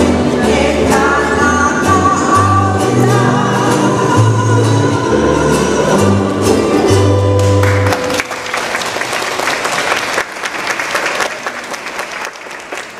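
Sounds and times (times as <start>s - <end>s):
ukulele and guitar band: 0.0s - 9.3s
audience applause: 7.6s - 12.9s.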